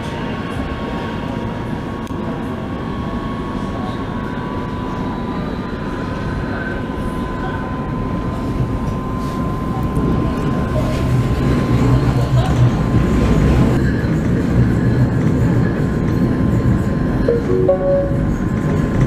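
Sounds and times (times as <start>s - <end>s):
metro train wheels rumbling on rails: 7.5s - 19.0s
steady high tone: 17.3s - 18.6s.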